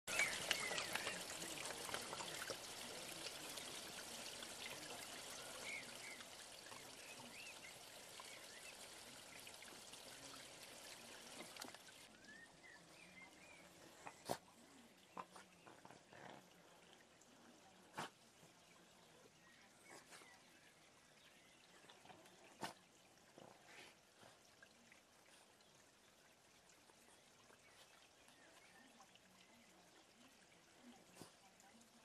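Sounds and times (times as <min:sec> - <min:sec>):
fountain splashing and trickling: 0:00.0 - 0:32.0.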